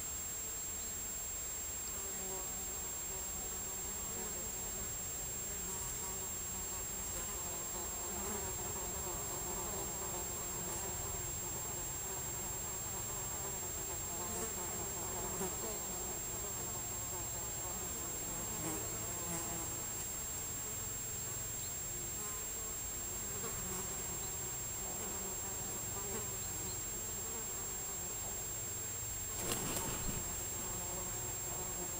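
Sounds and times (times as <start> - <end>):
flies buzzing: 1.9 - 31.9
faint high whine: 26.4 - 31.4
rustling flurry: 29.3 - 30.5.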